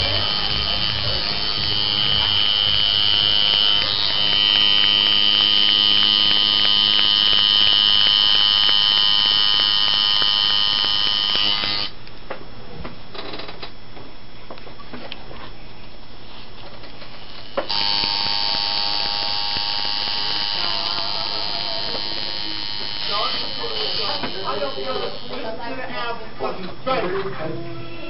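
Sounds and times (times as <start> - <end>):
tattoo machine buzzing: 0.0 - 12.1, 13.1 - 13.8, 16.2 - 25.6.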